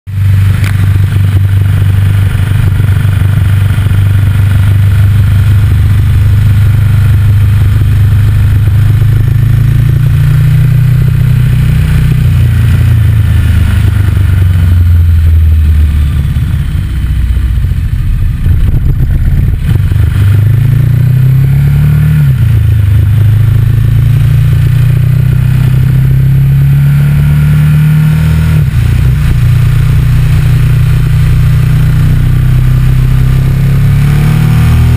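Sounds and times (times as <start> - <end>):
motorcycle engine accelerating: 0.1 - 34.9
wind rumble on microphone: 17.8 - 21.0.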